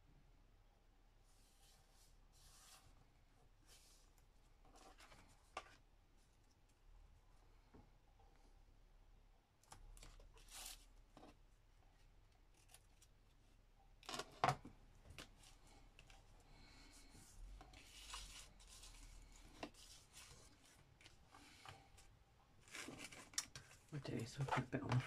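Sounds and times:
paper rustling: 15.1s - 25.0s.

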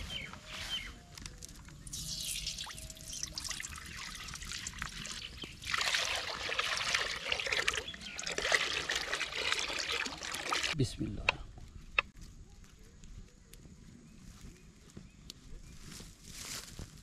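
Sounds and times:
water pouring and trickling: 1.5s - 10.8s.

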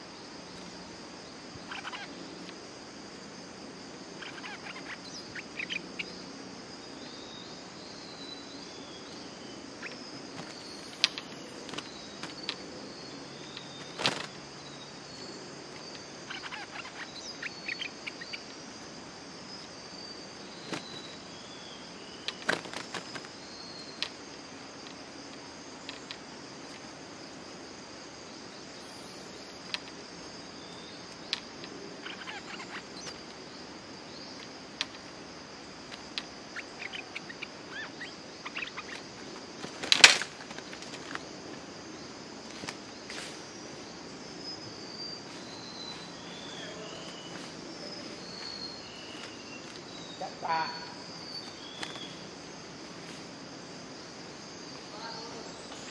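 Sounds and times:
high-pitched insect chorus: 0.0s - 55.9s.

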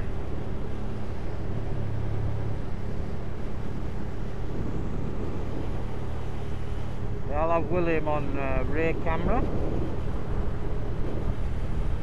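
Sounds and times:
motorcycle engine hum: 0.0s - 12.0s
road and wind noise: 0.0s - 12.0s.

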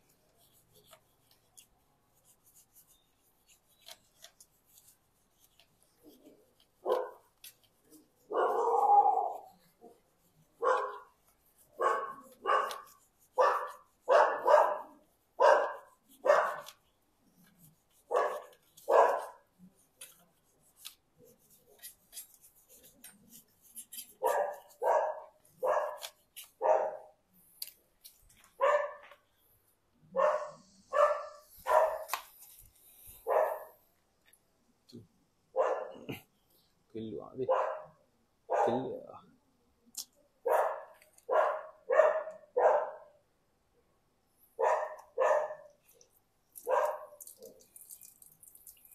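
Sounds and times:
dog barking: 6.8s - 7.3s, 8.3s - 10.0s, 10.6s - 11.1s, 11.8s - 16.8s, 18.1s - 19.4s, 24.2s - 27.2s, 28.6s - 29.1s, 30.1s - 32.2s, 33.2s - 33.8s, 35.5s - 36.2s, 37.5s - 39.0s, 40.4s - 43.2s, 44.6s - 45.8s, 46.6s - 47.2s.

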